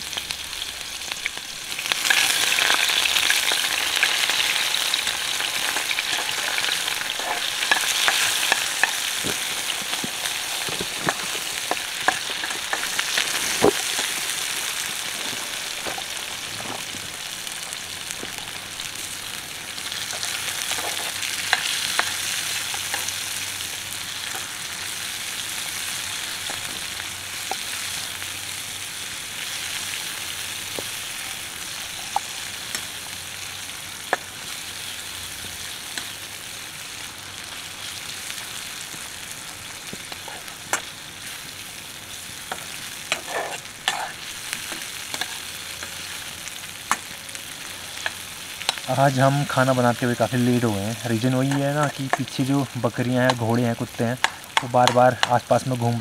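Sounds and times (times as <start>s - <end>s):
onions sizzling in hot oil: 0.0s - 56.0s
metal turner tapping and scraping pan: 42.5s - 45.4s, 51.5s - 52.4s, 53.2s - 53.4s, 54.2s - 55.5s.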